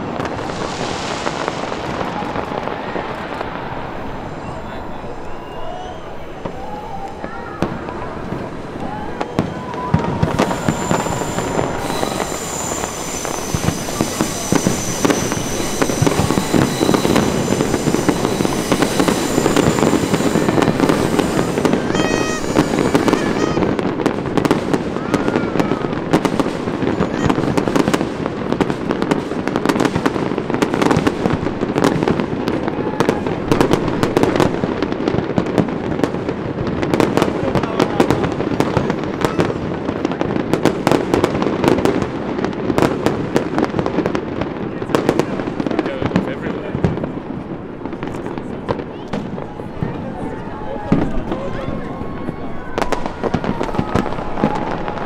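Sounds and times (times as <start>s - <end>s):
fireworks crackling pops: 0.0s - 55.0s
fireworks deep booms: 0.0s - 55.0s
high steady tones: 10.0s - 24.0s.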